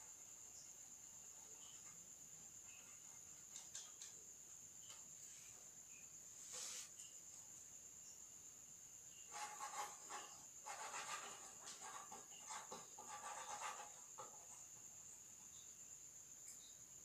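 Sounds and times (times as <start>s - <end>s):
pencil scratching on paper: 9.3s - 14.8s.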